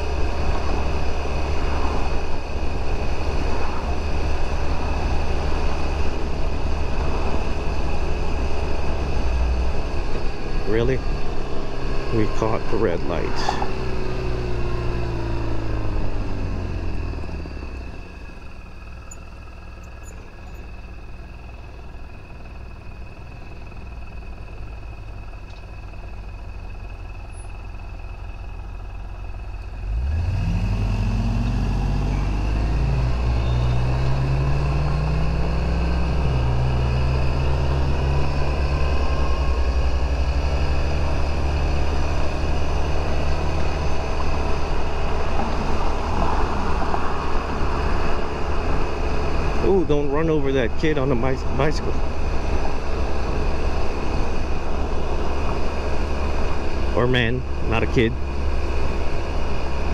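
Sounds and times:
scooter engine idling and revving: 0:00.0 - 0:59.9.

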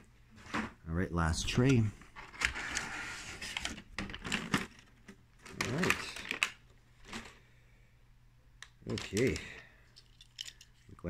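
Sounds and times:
toy cars clicking and clacking: 0:08.9 - 0:10.9.

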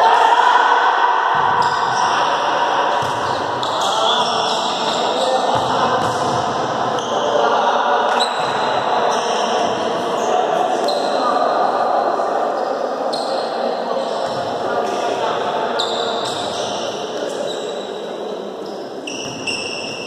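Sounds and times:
players calling out: 0:00.0 - 0:11.8
sneakers squeaking on court: 0:03.0 - 0:07.3, 0:08.2 - 0:10.3, 0:15.8 - 0:17.9, 0:18.6 - 0:20.0.

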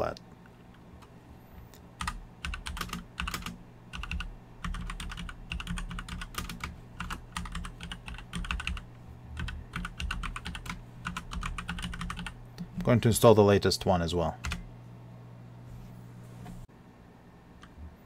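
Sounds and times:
keyboard typing: 0:02.0 - 0:08.8, 0:09.4 - 0:12.7, 0:14.4 - 0:14.7.

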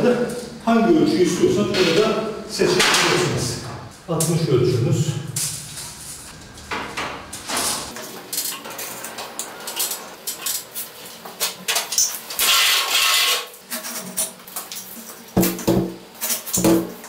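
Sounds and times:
tool scraping plaster wall: 0:12.3 - 0:14.0.

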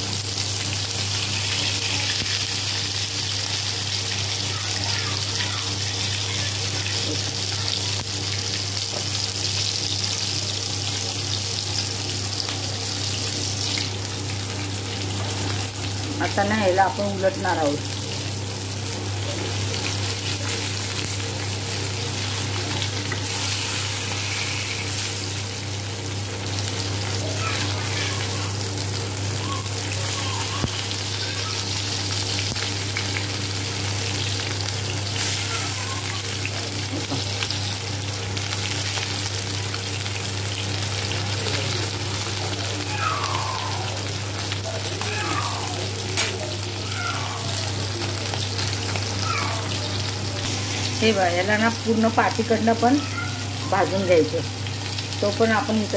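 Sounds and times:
fish sizzling in a pan: 0:00.0 - 0:55.9.

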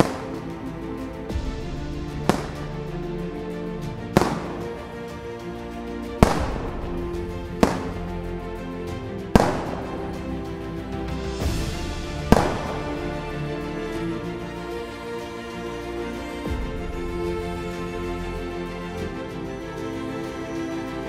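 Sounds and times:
background music: 0:00.0 - 0:21.0
salute gun blasts with echo: 0:02.3 - 0:02.6, 0:04.2 - 0:04.7, 0:06.2 - 0:06.8, 0:07.6 - 0:08.0, 0:12.3 - 0:13.0.

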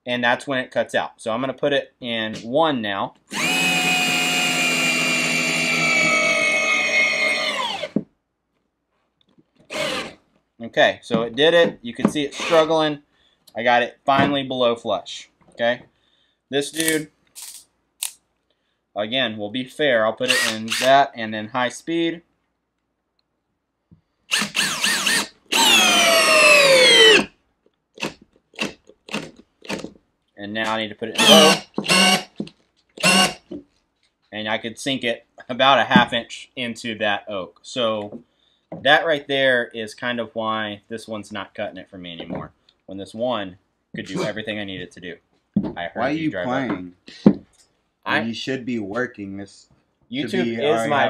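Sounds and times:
drill whine driving a screw: 0:03.3 - 0:08.0, 0:09.7 - 0:10.2, 0:20.3 - 0:20.9, 0:24.3 - 0:27.3, 0:31.2 - 0:32.4, 0:33.0 - 0:33.4.

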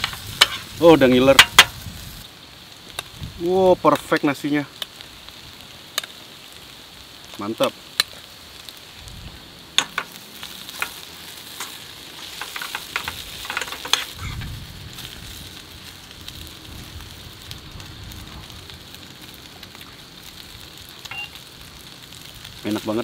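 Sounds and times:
food stirred and scraped in pan: 0:00.0 - 0:01.8, 0:09.8 - 0:16.1
meat and onions sizzling in a pan: 0:00.0 - 0:23.0.

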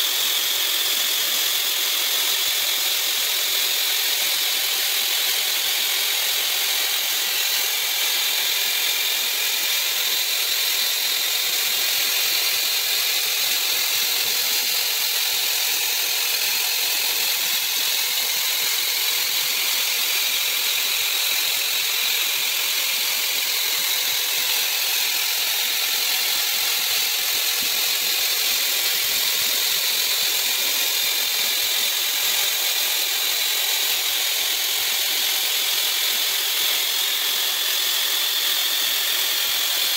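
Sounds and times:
spray-welding gun hissing: 0:00.0 - 0:39.9.

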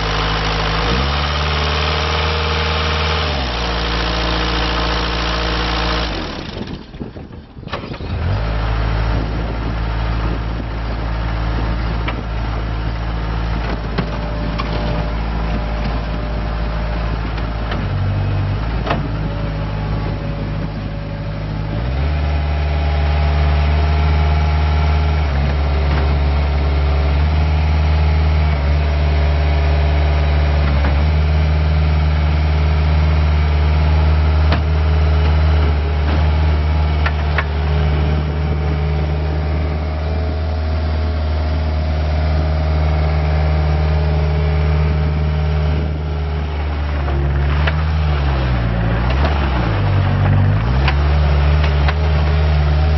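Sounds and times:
diesel engine running: 0:00.0 - 0:52.9.

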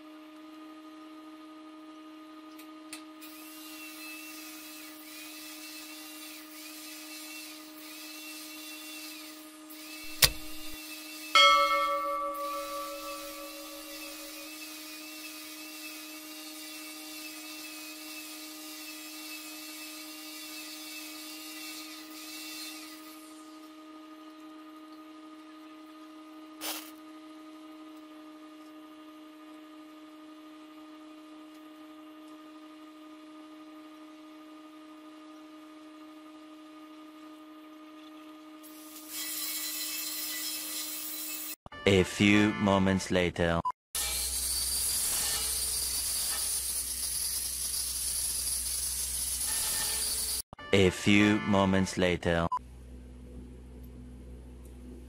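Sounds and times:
welding arc hissing: 0:03.3 - 0:11.3, 0:44.0 - 0:50.4
sharp click: 0:10.1 - 0:10.8.

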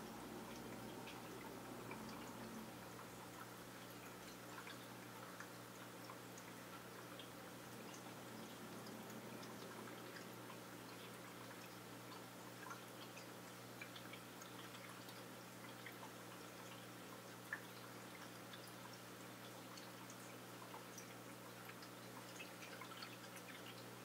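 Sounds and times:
aquarium filter hum: 0:00.0 - 0:24.0
water trickling and dripping: 0:00.0 - 0:24.0.

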